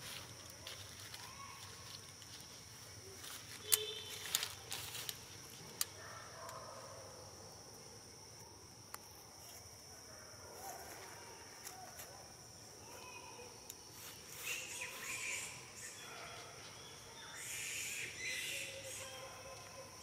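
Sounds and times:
high-pitched insect drone: 0:12.4 - 0:20.0.

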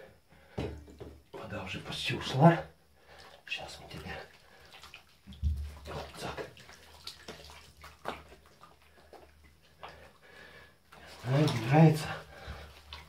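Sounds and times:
small splashes in shallow water: 0:03.2 - 0:10.1, 0:11.0 - 0:13.0.

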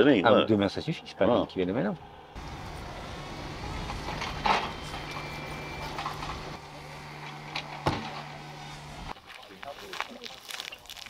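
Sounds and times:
motor humming: 0:02.0 - 0:09.2.

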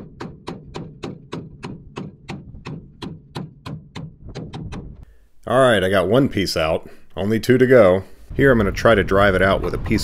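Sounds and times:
sledgehammer striking steel pin: 0:00.0 - 0:05.0.

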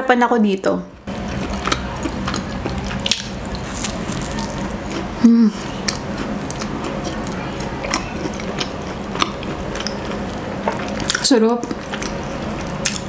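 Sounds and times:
chewing pastry: 0:01.1 - 0:13.0
person humming: 0:05.2 - 0:05.7.

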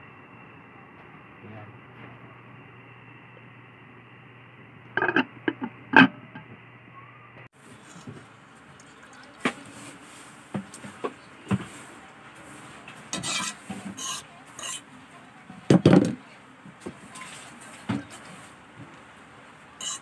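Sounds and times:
wet swishes of leaves in water: 0:07.6 - 0:11.0.

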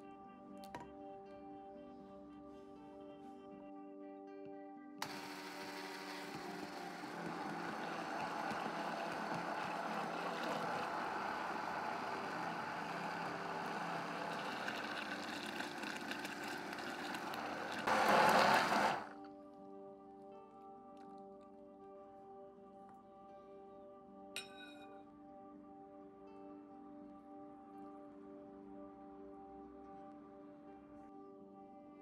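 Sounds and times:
immersion blender running: 0:05.0 - 0:19.2.

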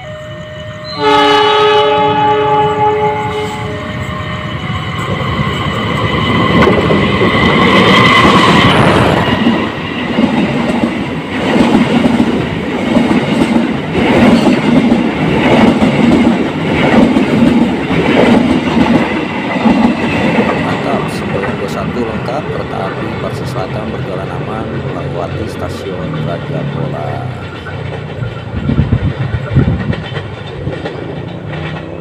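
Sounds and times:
diesel locomotive engine passing: 0:00.0 - 0:32.0
train wheels clattering over rail joints: 0:06.0 - 0:22.3, 0:27.2 - 0:32.0.

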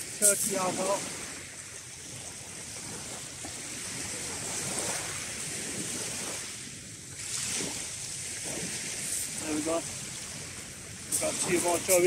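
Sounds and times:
waves washing onto shingle: 0:00.0 - 0:12.0.

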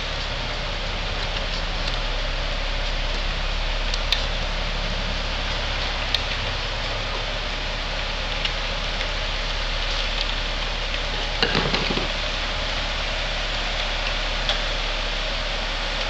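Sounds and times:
conveyor line running: 0:00.0 - 0:16.0
conveyor clicks and knocks: 0:11.2 - 0:12.2.

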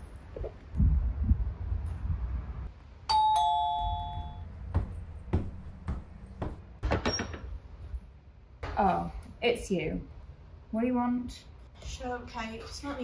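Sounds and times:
two-note doorbell chime: 0:03.1 - 0:04.5
soft thuds: 0:04.7 - 0:07.0.

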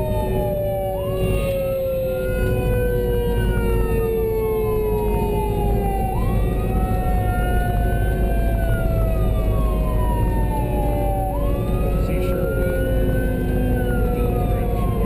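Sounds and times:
emergency siren wailing: 0:00.0 - 0:15.0
lower siren tone: 0:00.0 - 0:15.0
road and engine noise: 0:00.0 - 0:15.0.

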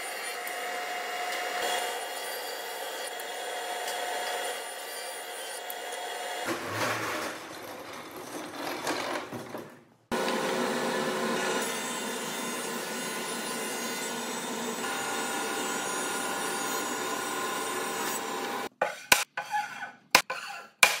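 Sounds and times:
table saw cutting wood: 0:00.0 - 0:07.2, 0:10.1 - 0:18.7
planer running: 0:10.1 - 0:18.7.

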